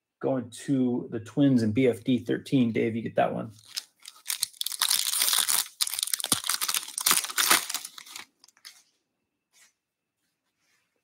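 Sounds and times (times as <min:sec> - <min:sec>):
wrapper tearing and crackling: 0:03.6 - 0:08.8.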